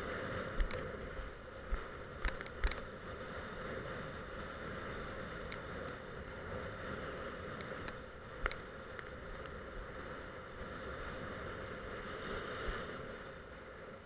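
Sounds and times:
wind and water rushing: 0.0 - 14.0.

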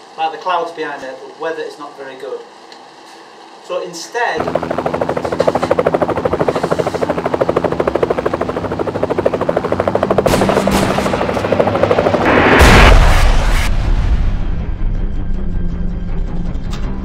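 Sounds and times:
helicopter rotor blades chopping: 4.4 - 13.6
loud rushing burst of noise: 10.6 - 14.8.

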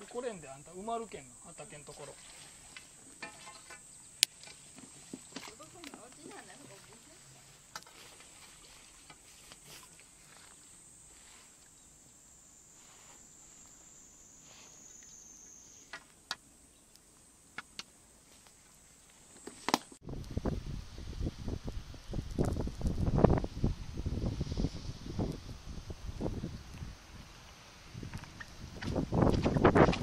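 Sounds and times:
high-pitched insect drone: 10.0 - 16.1
wind buffeting microphone: 20.0 - 30.0.

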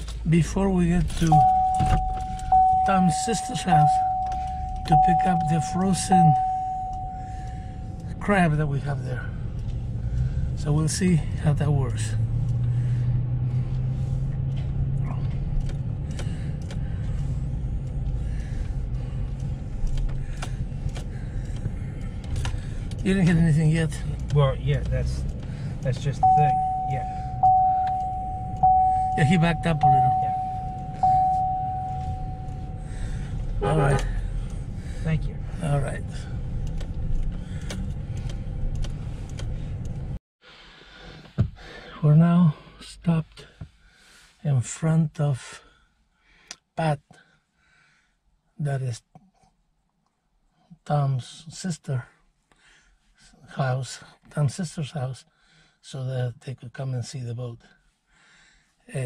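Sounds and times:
truck engine and road rumble: 0.0 - 45.7.

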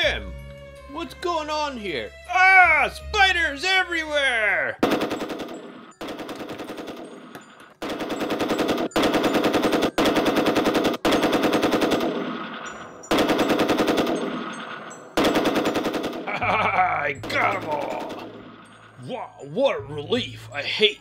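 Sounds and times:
machine-gun bursts: 4.8 - 7.2, 7.8 - 16.4.

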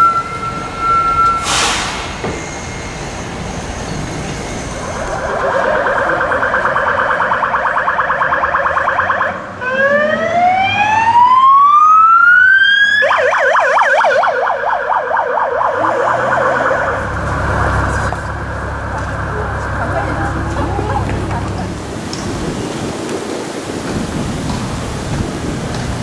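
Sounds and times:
car engine and tyre noise: 0.0 - 26.0
police siren yelp and wail: 4.3 - 21.6.

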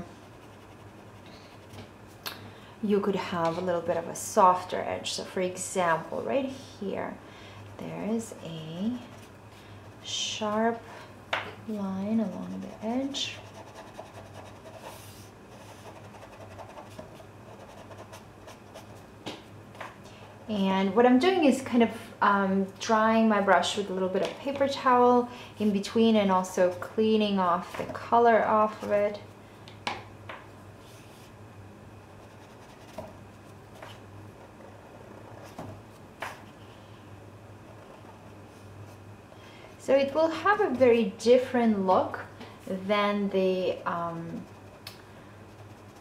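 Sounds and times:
steady low hum: 0.0 - 46.0
paintbrush scratching on paper: 0.2 - 1.8, 12.1 - 19.0, 32.2 - 33.1, 43.9 - 44.8, 45.5 - 46.0.

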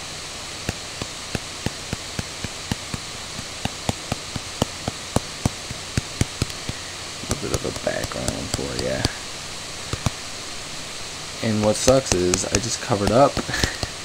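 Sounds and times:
steady hiss: 0.0 - 14.0
pen tip tapping on screen: 0.7 - 9.2, 9.9 - 10.2.

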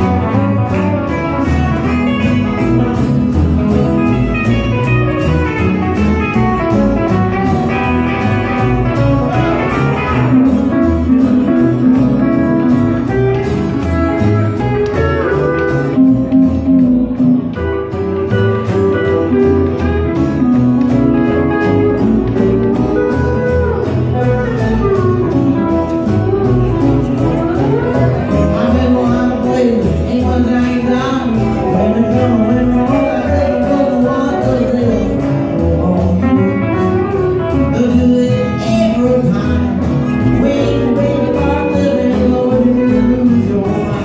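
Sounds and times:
rockabilly band playing: 0.0 - 44.0
man singing: 5.8 - 13.2, 21.2 - 44.0.

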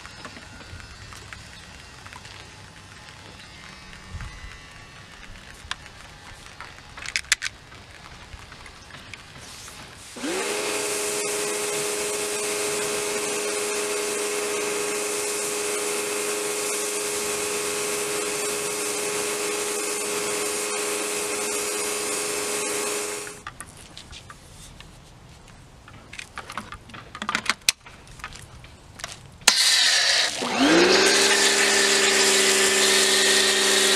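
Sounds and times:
high-pressure water jet hissing: 9.3 - 23.4, 29.5 - 33.9
pressure washer motor humming: 10.0 - 23.4, 29.5 - 33.9.

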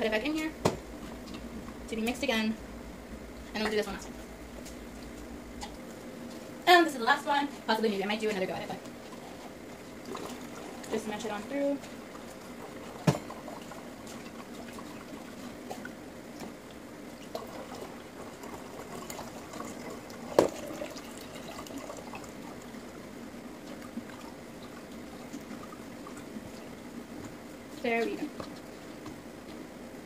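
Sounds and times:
juice trickling through a strainer: 8.8 - 29.7.

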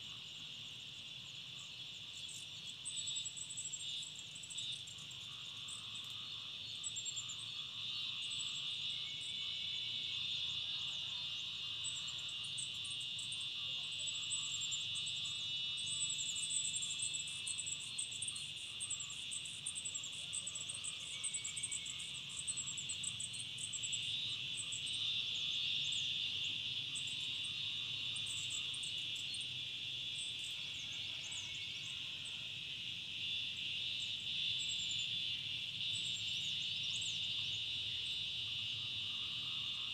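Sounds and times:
crickets chirping chorus: 0.0 - 39.9
faint high rapid chirps: 1.6 - 32.5.

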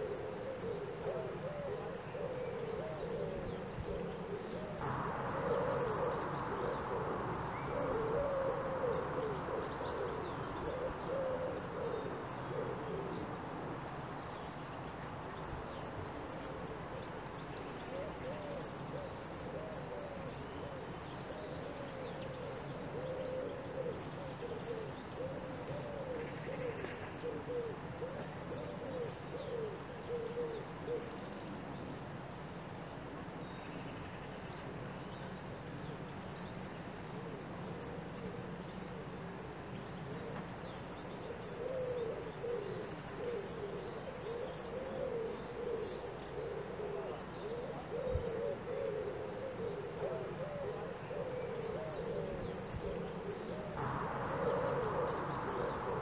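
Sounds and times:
low wavering bird calls: 0.0 - 13.6, 14.4 - 31.6, 33.4 - 56.0
steady rushing noise: 53.8 - 56.0.

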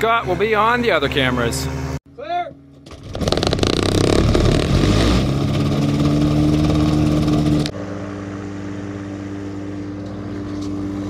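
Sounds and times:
two-stroke engine running: 2.6 - 4.8, 5.4 - 11.0.

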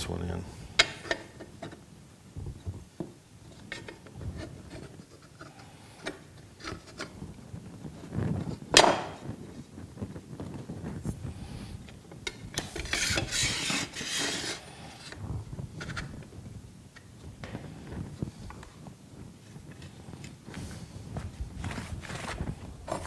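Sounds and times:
metal knife scraping along jig: 12.7 - 14.7.

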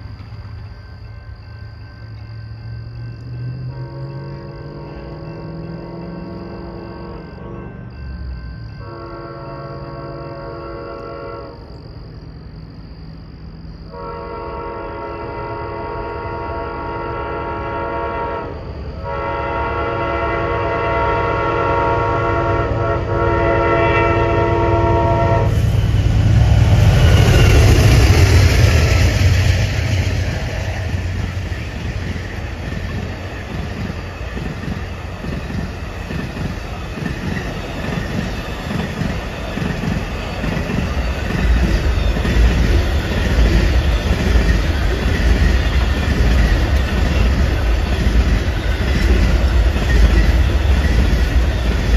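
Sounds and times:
locomotives passing: 0.0 - 51.9
locomotive horn: 3.6 - 7.9, 8.8 - 11.7, 13.9 - 25.9
train wheels clacking on rails: 24.9 - 51.9.

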